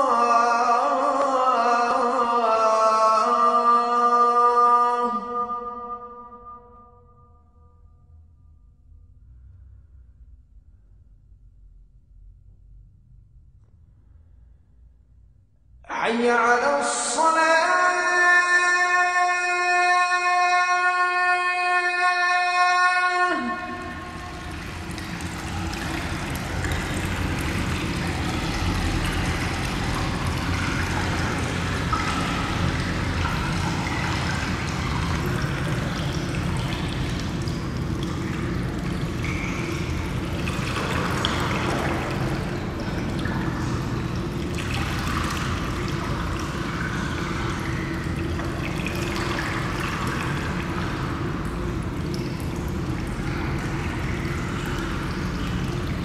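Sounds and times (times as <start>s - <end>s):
low steady hum: 0.0s - 56.0s
water trickling: 22.6s - 56.0s.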